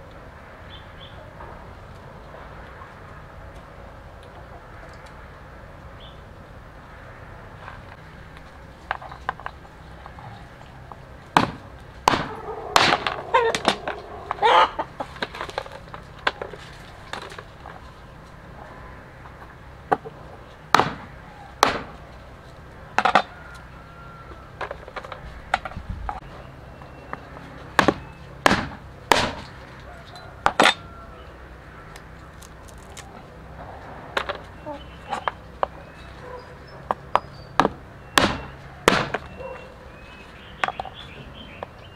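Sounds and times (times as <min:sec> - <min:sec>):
hens clucking: 0:12.0 - 0:28.2, 0:29.5 - 0:37.3.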